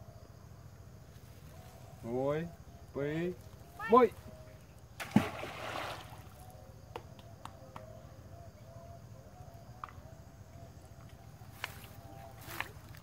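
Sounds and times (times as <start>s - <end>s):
quiet water movement: 0.4s - 7.2s, 8.3s - 13.0s
cast net splashing into water: 5.0s - 6.5s.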